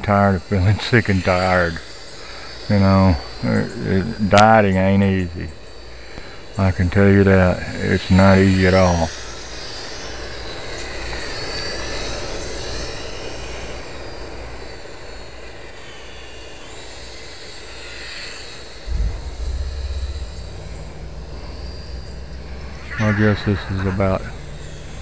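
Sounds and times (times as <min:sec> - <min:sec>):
low rumble: 0:18.9 - 0:25.0.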